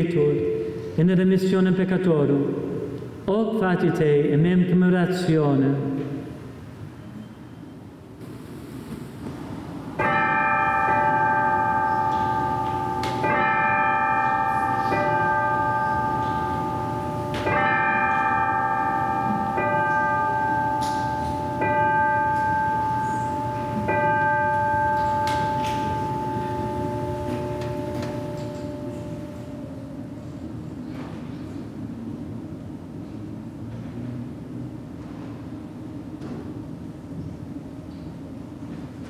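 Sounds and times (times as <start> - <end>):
altar bell ringing: 10.0 - 30.2.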